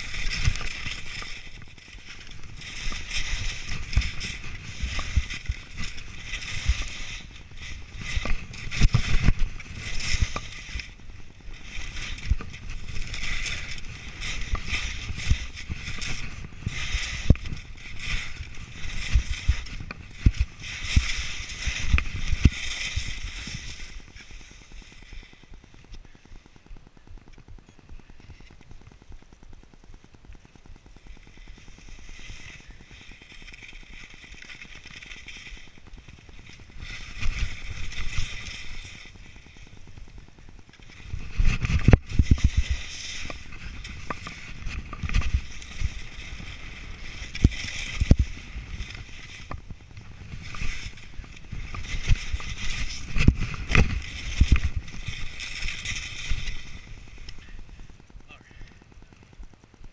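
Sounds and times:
skis scraping over snow: 0:00.0 - 0:59.9
wind rumbling on microphone: 0:00.0 - 0:59.9.

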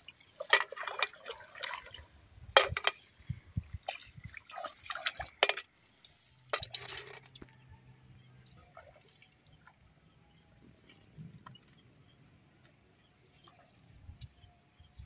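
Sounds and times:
shallow water splashing and dripping: 0:00.0 - 0:07.5.

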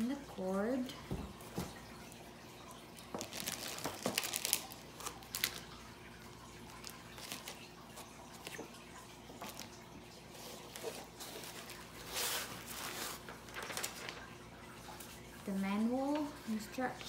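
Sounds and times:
plastic sleeve crinkling: 0:03.0 - 0:15.6.

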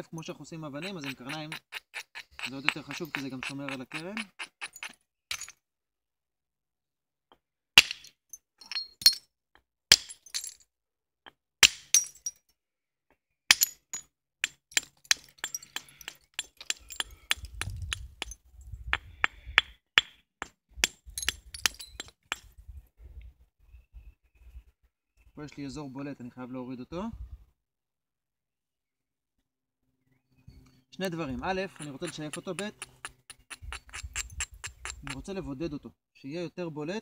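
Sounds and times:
stone rubbing in hands: 0:00.7 - 0:05.0, 0:31.6 - 0:35.2
light taps and clicks on stone: 0:00.8 - 0:05.5, 0:14.4 - 0:22.5, 0:31.8 - 0:35.2
antler hammer striking flint: 0:00.8 - 0:05.6, 0:07.8 - 0:09.2, 0:09.9 - 0:10.5, 0:11.6 - 0:12.3, 0:13.5 - 0:22.5, 0:31.8 - 0:35.2.

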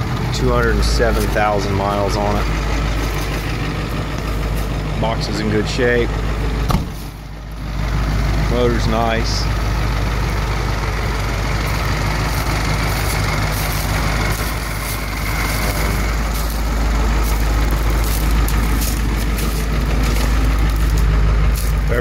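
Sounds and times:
diesel truck idling: 0:00.0 - 0:22.0
footsteps on dry leaves: 0:01.0 - 0:04.8, 0:11.6 - 0:22.0.

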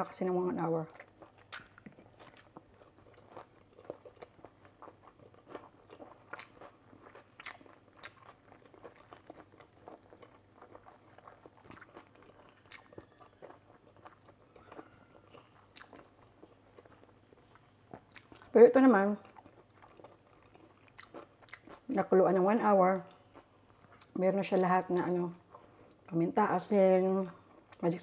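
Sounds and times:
wet chewing mouth clicks: 0:01.0 - 0:18.5.

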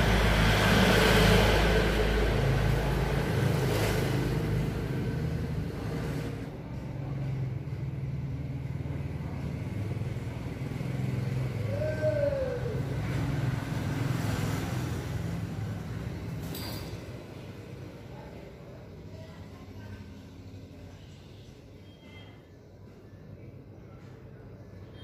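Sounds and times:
engine humming: 0:00.0 - 0:16.5.

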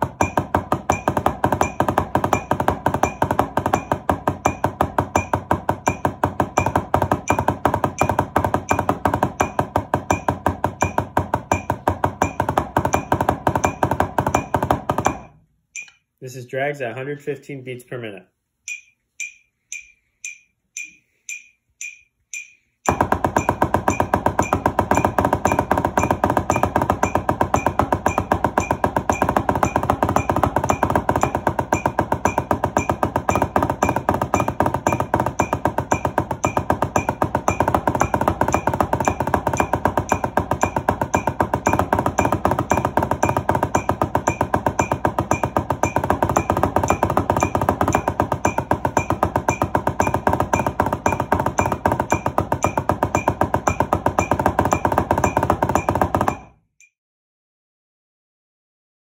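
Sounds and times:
drumsticks on practice pad: 0:00.0 - 0:16.2, 0:18.6 - 0:56.6
metronome clicking: 0:15.7 - 0:16.2, 0:18.6 - 0:22.9.

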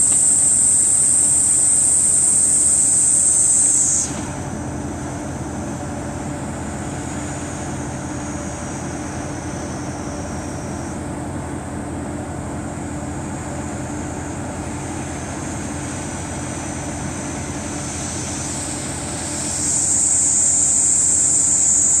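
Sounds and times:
high-pitched insect buzz: 0:00.0 - 0:04.2, 0:18.2 - 0:22.0
diesel railcar engine idling: 0:04.3 - 0:21.3.

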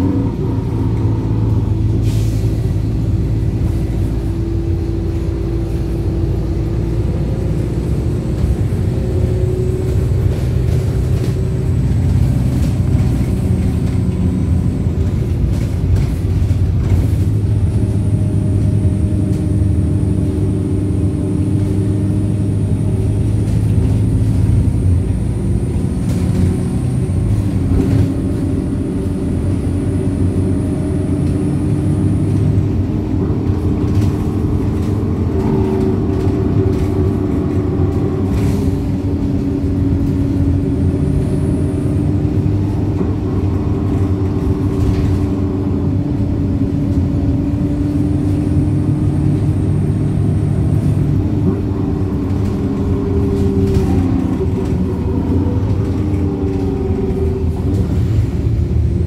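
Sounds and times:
bus engine and road rumble: 0:00.0 - 0:59.0.

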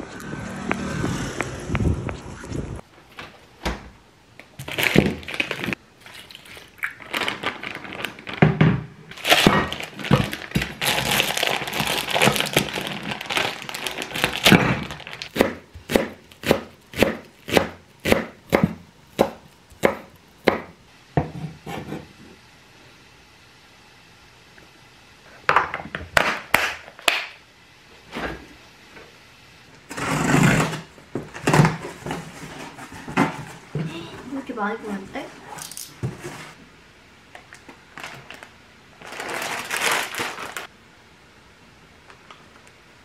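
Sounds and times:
plastic bag crinkling: 0:04.6 - 0:08.5, 0:09.1 - 0:15.4, 0:37.9 - 0:40.7
knife chopping on wooden board: 0:15.3 - 0:22.0.

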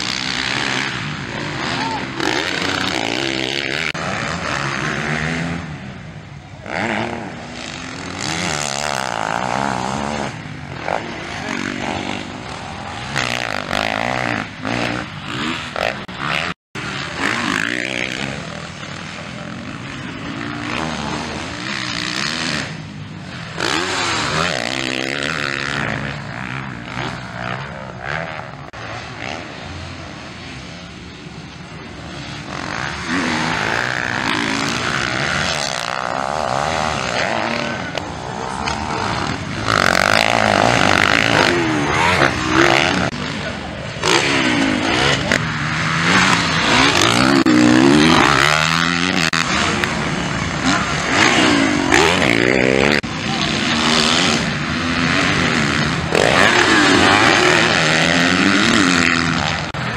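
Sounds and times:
dirt bike engines revving: 0:00.0 - 0:59.9.

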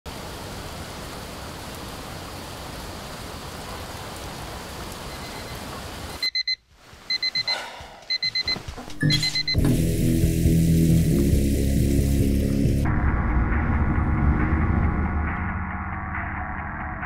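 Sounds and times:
steady rain hiss: 0:00.1 - 0:07.3, 0:09.8 - 0:12.8
digital alarm clock beeping: 0:06.2 - 0:09.8.

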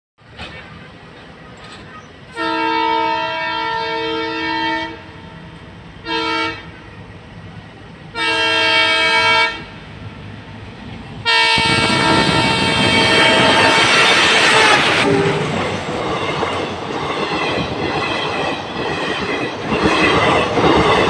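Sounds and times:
diesel locomotive horn blasts: 0:02.3 - 0:06.8, 0:08.1 - 0:09.8, 0:11.2 - 0:15.6.

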